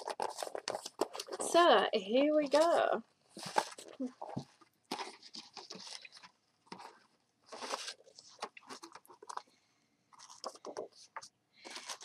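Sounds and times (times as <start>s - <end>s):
cardboard and paper rustling: 0.0s - 1.6s, 2.4s - 9.5s, 10.2s - 12.0s.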